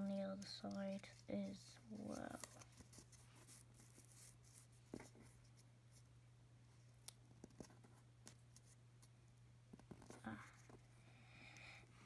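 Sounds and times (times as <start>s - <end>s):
paper being folded and creased: 0.0s - 5.4s.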